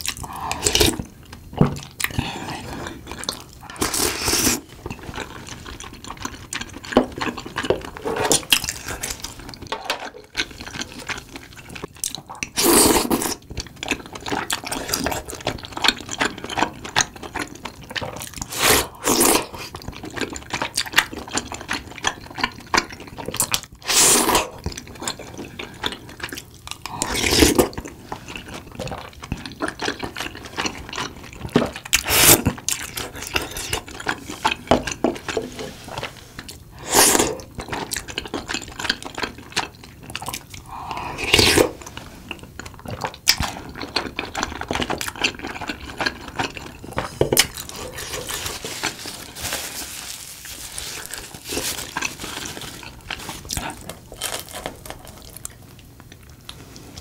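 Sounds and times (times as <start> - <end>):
chewing: 0.0 - 57.0
wet slurping: 31.9 - 34.6.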